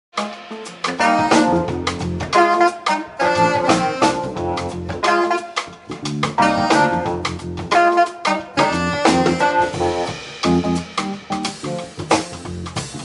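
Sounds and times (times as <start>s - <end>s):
drum kit: 0.1s - 13.0s
saxophone melody: 0.2s - 12.1s
keyboards: 0.2s - 13.0s
electric bass: 0.8s - 13.0s.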